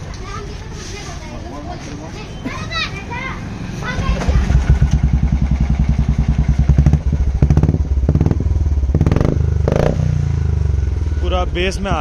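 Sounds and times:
engine throttle blips: 3.8s - 12.0s
motorcycle engine idling: 3.9s - 12.0s.

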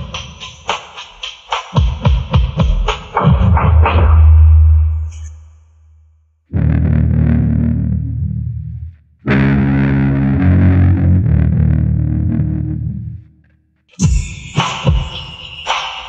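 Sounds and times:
distorted electric guitar chords: 6.5s - 13.2s.

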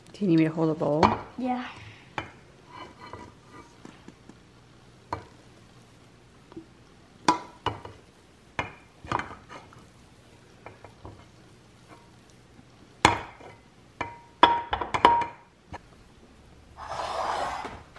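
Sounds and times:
spatula scraping metal bowl: 16.8s - 17.8s.

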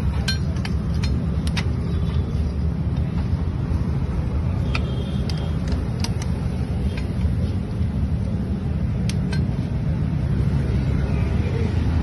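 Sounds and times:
light metallic clinks: 0.0s - 2.1s.

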